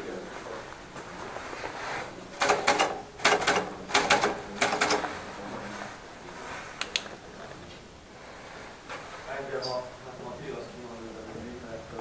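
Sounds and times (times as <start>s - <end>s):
typewriter keys clacking: 2.4s - 5.1s.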